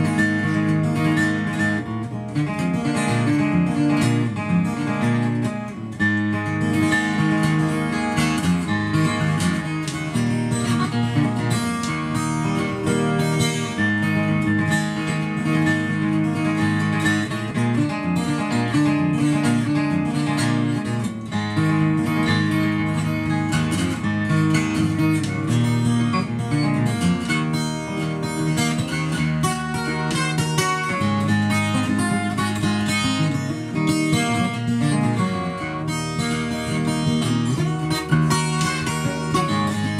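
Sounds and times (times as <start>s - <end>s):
fingerpicked acoustic guitar: 0.0s - 39.9s.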